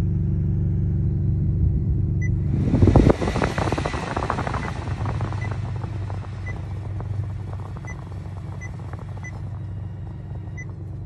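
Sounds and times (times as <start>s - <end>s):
car low hum: 0.0s - 11.0s
blower rushing air: 2.2s - 11.0s.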